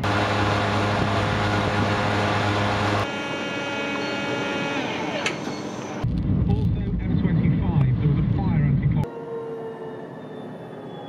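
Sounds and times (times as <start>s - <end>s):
coffee machine whine: 0.0s - 6.0s
petrol pump motor humming: 0.0s - 6.0s.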